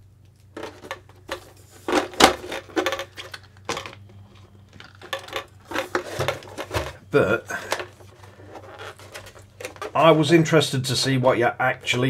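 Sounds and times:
plastic toy car body handling: 0.6 - 4.0, 4.8 - 7.0, 7.6 - 10.2.

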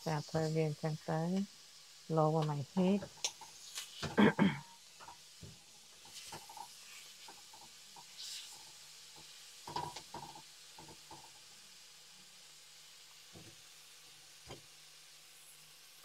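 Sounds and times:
faint sizzle: 0.0 - 16.0
spatula scraping frying pan: 5.9 - 11.3.

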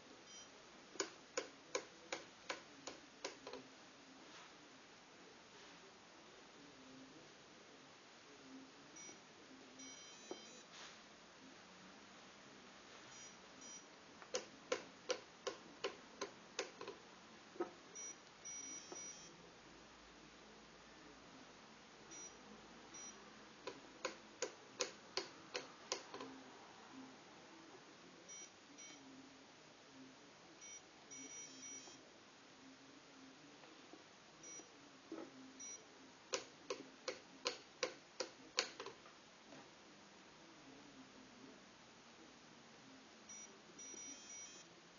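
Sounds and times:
electronic beeps: 0.3 - 0.5, 9.0 - 9.2, 9.8 - 10.7, 13.1 - 14.5, 18.0 - 19.4, 22.1 - 23.2, 28.3 - 29.0, 30.6 - 32.0, 35.6 - 35.9, 43.3 - 44.7.

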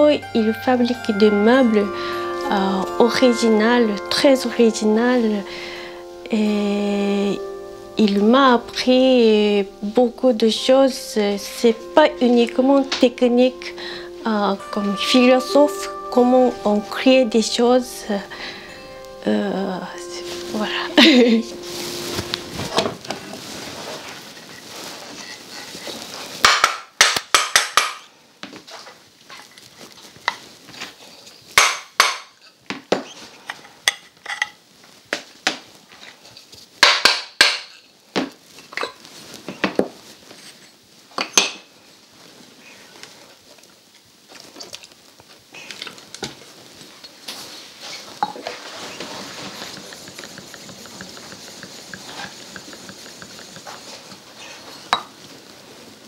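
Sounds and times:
soft steady rubbing: 19.2 - 26.4, 46.5 - 56.0.

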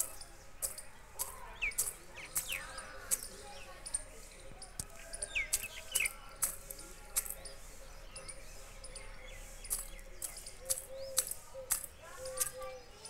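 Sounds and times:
beak clicking on metal bowl: 0.0 - 4.0, 9.6 - 12.6
small bird chirping: 0.0 - 13.0.

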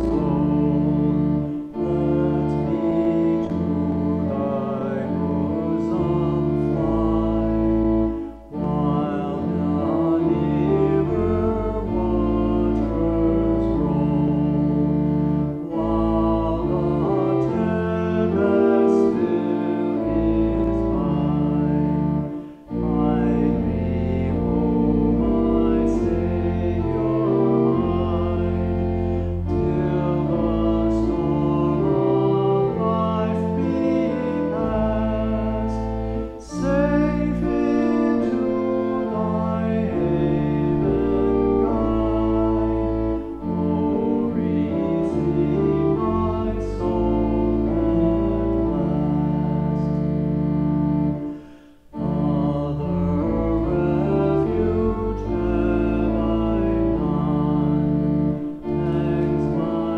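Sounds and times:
slow meditative music: 0.0 - 59.9.

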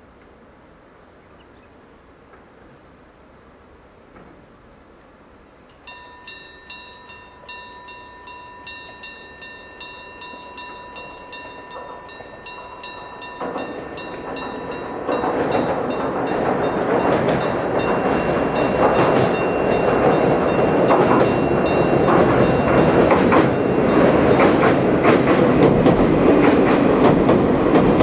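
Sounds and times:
approaching train running: 4.2 - 28.0
level crossing warning bell: 5.8 - 28.0.

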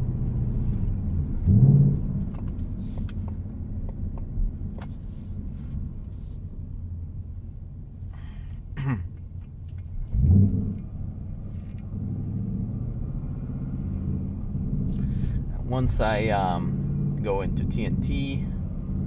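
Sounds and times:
car engine drone inside cabin: 0.0 - 19.0.

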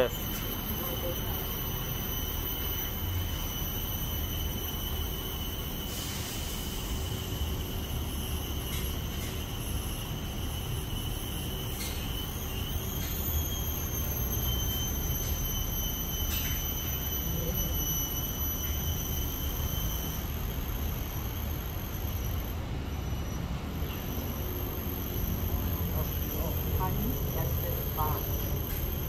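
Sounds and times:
high-pitched whine: 0.0 - 29.0.

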